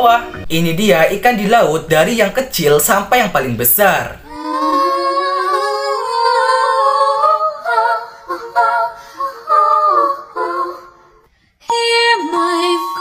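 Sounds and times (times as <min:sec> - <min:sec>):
tune with held notes: 0:00.0 - 0:00.6
music with high sung melody: 0:04.3 - 0:13.0.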